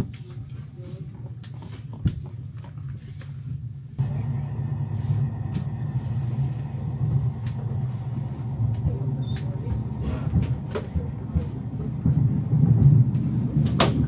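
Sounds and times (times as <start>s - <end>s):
train rumbling: 4.0s - 14.0s
sharp clicks of train: 5.4s - 14.0s.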